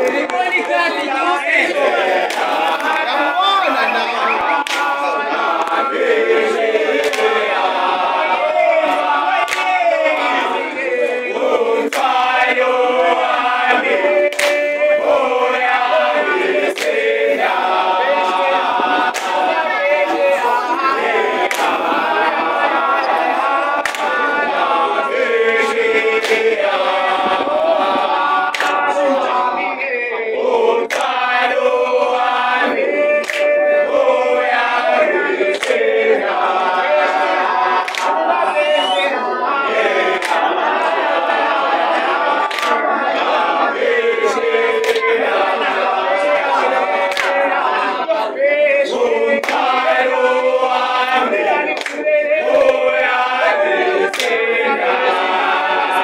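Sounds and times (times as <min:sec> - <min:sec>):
hand claps: 0:00.0 - 0:00.9, 0:02.2 - 0:05.9, 0:06.9 - 0:07.6, 0:08.9 - 0:10.3, 0:11.8 - 0:12.5, 0:14.2 - 0:15.0, 0:16.6 - 0:17.0, 0:18.8 - 0:19.6, 0:21.4 - 0:21.8, 0:23.4 - 0:24.4, 0:25.7 - 0:26.6, 0:28.4 - 0:29.0, 0:30.8 - 0:31.3, 0:33.1 - 0:33.8, 0:35.4 - 0:35.9, 0:37.8 - 0:39.1, 0:40.2 - 0:40.6, 0:42.4 - 0:42.9, 0:44.8 - 0:45.2, 0:47.0 - 0:47.6, 0:49.4 - 0:50.0, 0:50.8 - 0:53.4, 0:54.1 - 0:54.4
men singing a cappella: 0:00.0 - 0:56.0.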